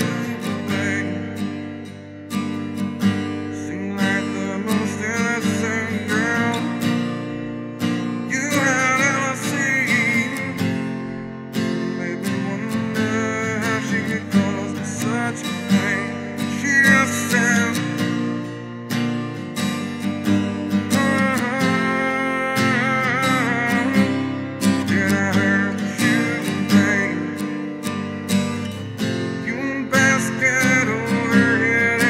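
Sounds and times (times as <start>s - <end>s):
acoustic guitar strumming: 0.0s - 32.0s.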